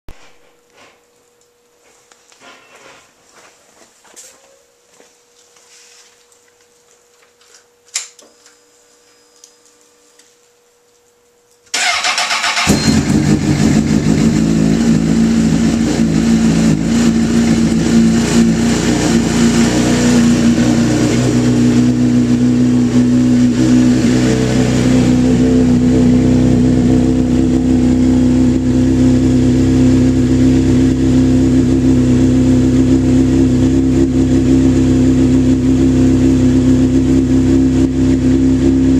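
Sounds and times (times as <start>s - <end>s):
motorcycle starter cranking: 11.7s - 13.7s.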